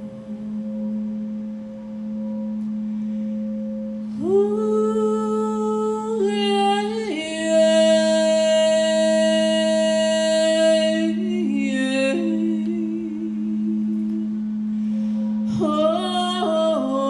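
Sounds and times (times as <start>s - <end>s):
singing bowl ringing: 0.0s - 17.0s
woman singing wordless notes: 4.1s - 17.0s.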